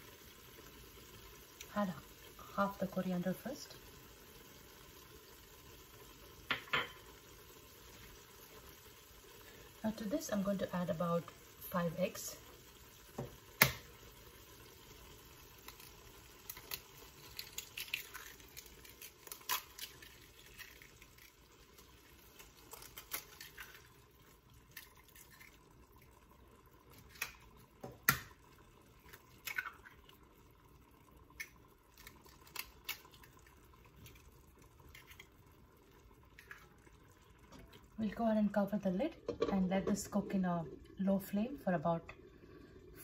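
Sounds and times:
eggs dropping into sauce: 0:15.6 - 0:24.0, 0:26.9 - 0:30.2
eggshells cracking: 0:15.6 - 0:24.0, 0:26.9 - 0:28.4, 0:29.0 - 0:30.1, 0:31.3 - 0:35.4
soft wet drips: 0:19.8 - 0:38.2.

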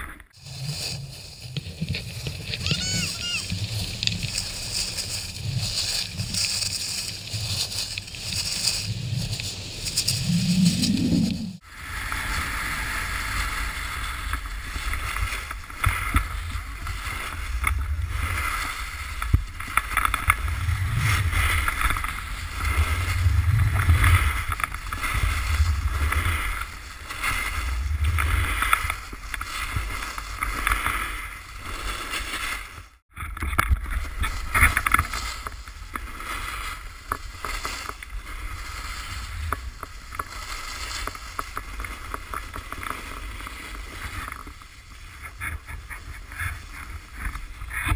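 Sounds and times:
snowboard carving over snow: 0:00.0 - 0:47.9
wind rushing over microphone: 0:00.3 - 0:32.4.

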